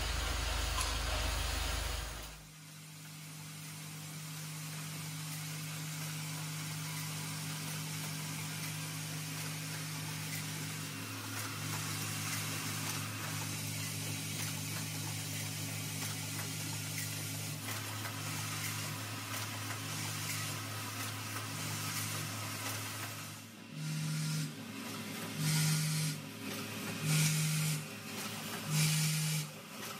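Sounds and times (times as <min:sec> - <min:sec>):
machine humming: 0:00.0 - 0:02.4.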